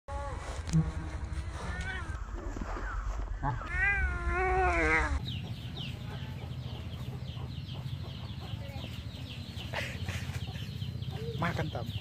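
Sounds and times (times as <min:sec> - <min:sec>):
kitten crying: 0:03.6 - 0:05.2
bird chirps: 0:05.2 - 0:12.0.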